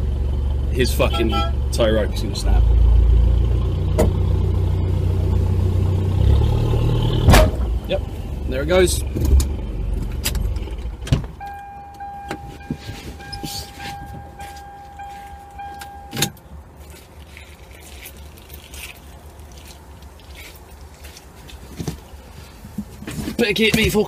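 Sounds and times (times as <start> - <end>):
truck engine idling: 0.0 - 17.0
steady warning buzzer: 11.4 - 16.2.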